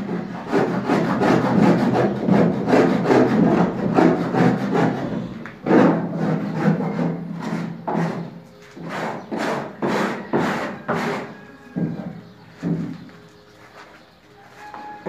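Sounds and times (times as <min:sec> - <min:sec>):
rough rasping strokes: 0:00.2 - 0:11.4.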